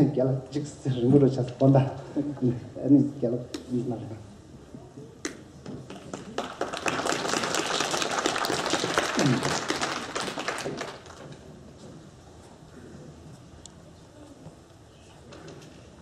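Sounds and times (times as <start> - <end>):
audience applause: 5.9 - 11.4.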